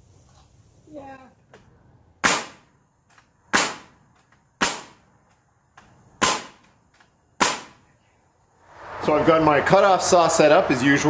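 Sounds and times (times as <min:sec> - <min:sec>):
nails driven into timber: 0:02.2 - 0:07.8.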